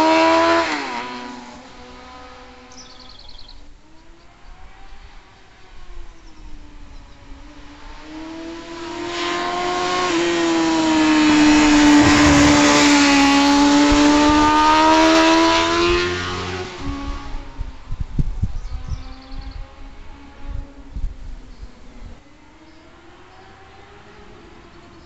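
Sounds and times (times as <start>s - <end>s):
motorcycle engine passing: 7.6s - 17.8s.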